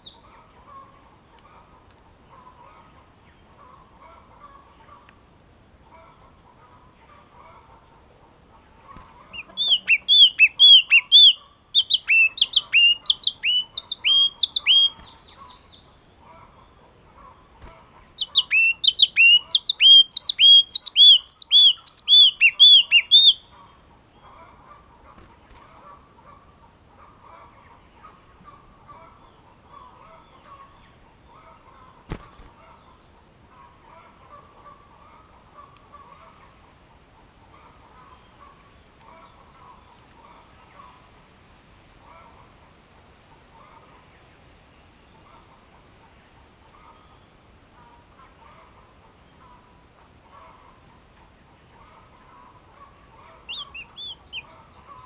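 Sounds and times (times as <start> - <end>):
faint background hum: 0.0 - 55.0
bird singing whistled notes: 9.3 - 15.8, 18.2 - 23.5, 53.4 - 54.5.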